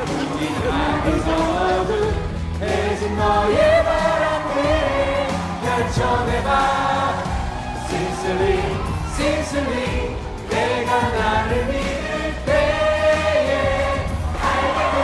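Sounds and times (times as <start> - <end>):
band accompaniment: 0.0 - 15.0
person singing pop song: 0.0 - 15.0.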